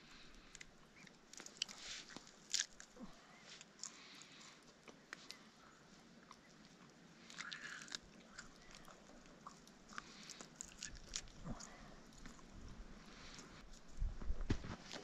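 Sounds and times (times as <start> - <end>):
chewing and tearing meat: 0.4 - 5.4, 6.2 - 14.0.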